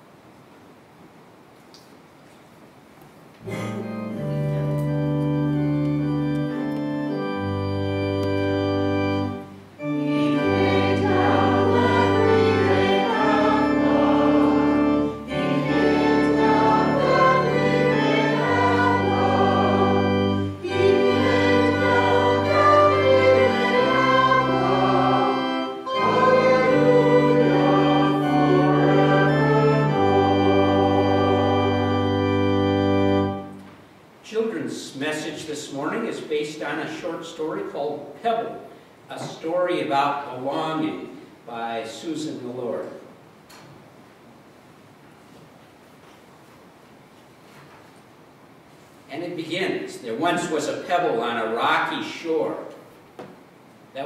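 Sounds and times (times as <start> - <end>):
church organ chords: 3.4 - 33.7.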